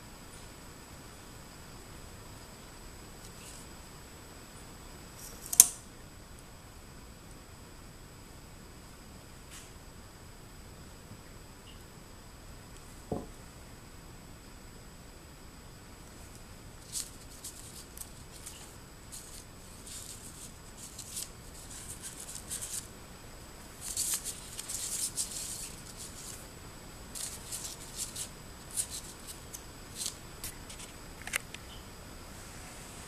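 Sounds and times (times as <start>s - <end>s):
paper card rustling and crinkling: 16.8s - 22.9s, 23.7s - 26.4s, 27.1s - 31.4s.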